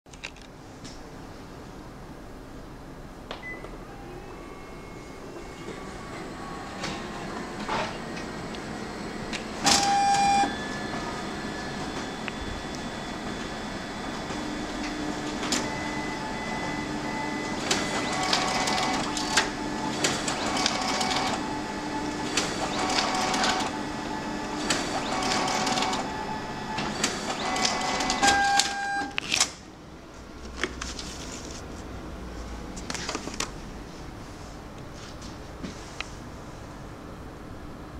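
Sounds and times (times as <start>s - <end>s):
copier short whines: 3.4s - 29.2s
copier running: 3.8s - 35.3s
copier clicks: 9.3s - 10.5s, 17.5s - 23.9s, 24.5s - 26.1s, 26.8s - 29.6s.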